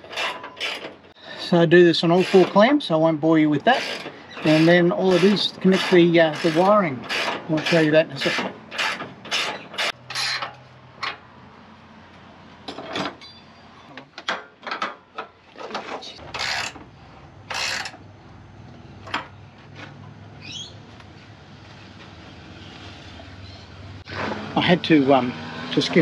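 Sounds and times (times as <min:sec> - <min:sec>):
bird chirping: 0:13.2 - 0:13.9, 0:20.4 - 0:20.8, 0:22.6 - 0:23.8
spanner ratcheting on metal: 0:17.5 - 0:18.0.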